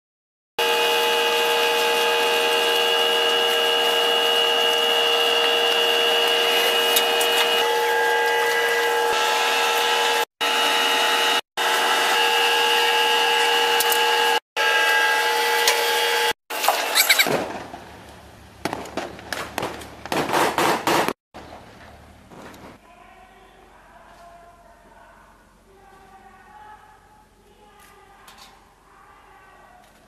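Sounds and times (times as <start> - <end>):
loud machinery noise: 0.6 - 17.0
sharp cracks and knocks: 16.6 - 21.5.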